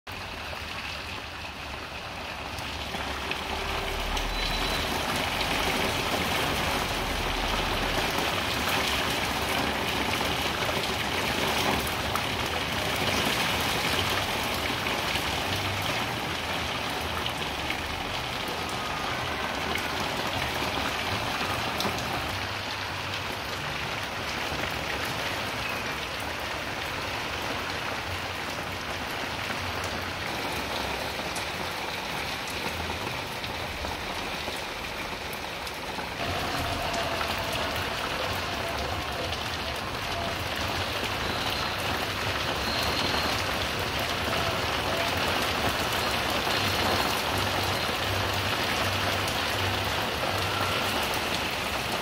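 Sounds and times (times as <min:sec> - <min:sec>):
heavy rain on tiled patio: 0:00.0 - 0:52.0.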